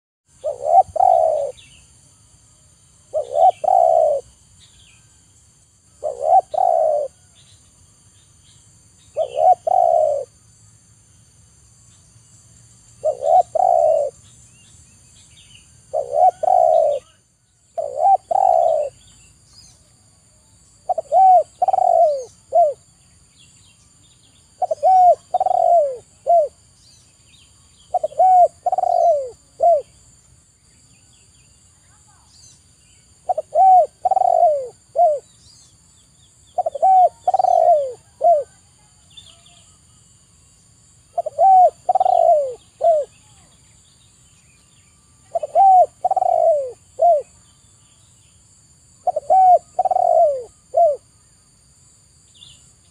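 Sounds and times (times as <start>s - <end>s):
dove cooing: 0.3s - 1.7s, 3.1s - 4.4s, 6.0s - 7.3s, 9.2s - 10.4s, 13.0s - 14.2s, 15.9s - 17.2s, 17.8s - 19.1s, 20.8s - 22.9s, 24.6s - 26.6s, 27.9s - 30.0s, 33.2s - 35.3s, 36.6s - 38.9s, 41.1s - 43.5s, 45.3s - 47.4s, 49.0s - 51.1s.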